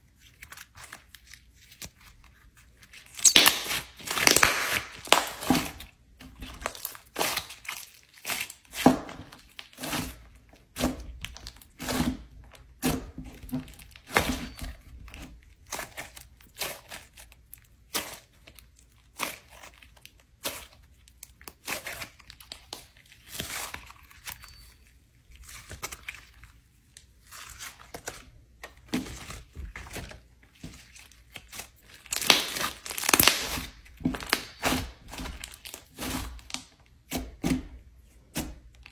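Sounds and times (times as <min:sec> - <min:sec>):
slime squishing: 0:00.0 - 0:38.9.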